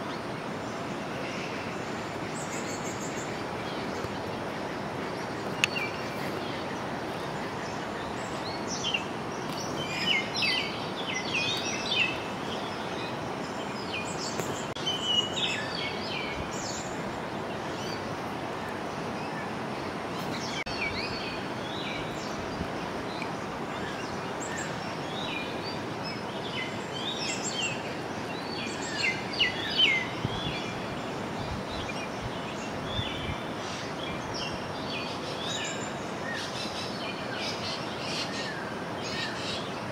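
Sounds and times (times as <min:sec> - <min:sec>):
birds chirping: 0:00.0 - 0:39.9.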